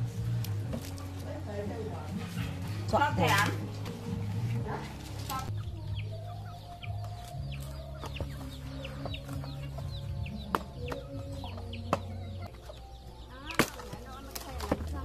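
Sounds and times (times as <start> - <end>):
chickens clucking: 0.0 - 15.0
axe striking wooden log: 13.5 - 14.0.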